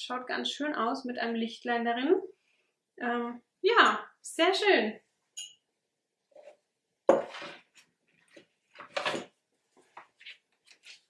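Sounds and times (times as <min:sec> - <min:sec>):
items clattering: 0:07.1 - 0:11.0.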